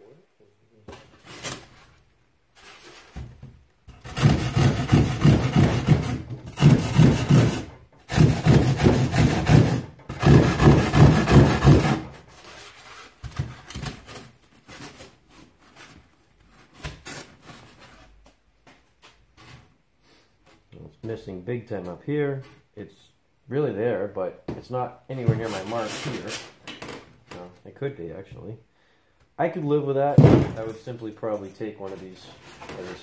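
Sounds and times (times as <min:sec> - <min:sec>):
knocks and rubbing of foam: 0:03.1 - 0:12.1
rasp filing foam board: 0:03.9 - 0:13.8, 0:25.2 - 0:26.6.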